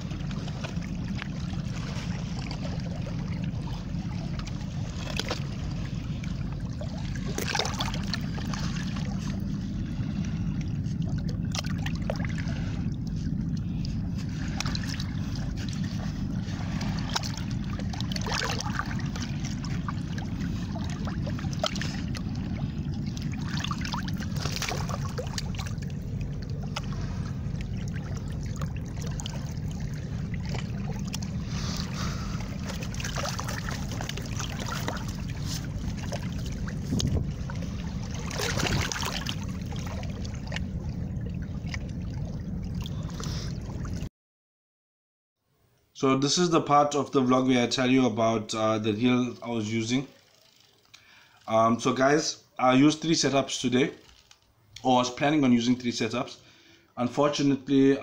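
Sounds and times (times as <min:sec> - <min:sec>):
sea water trickling among rocks: 0:00.0 - 0:44.1, 0:50.0 - 0:51.5, 0:54.0 - 0:54.6
steady low rumble: 0:00.0 - 0:44.1
water splash: 0:00.0 - 0:44.1.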